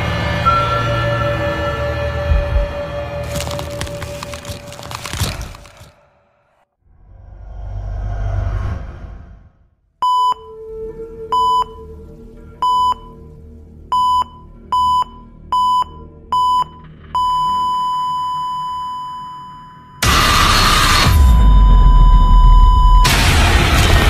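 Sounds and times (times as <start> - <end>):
low rumble: 2.1 - 4.2, 6.9 - 9.7
low drone: 6.3 - 9.7
heart monitor beeps: 10.0 - 10.6, 11.3 - 11.9, 12.6 - 13.2, 14.0 - 20.0.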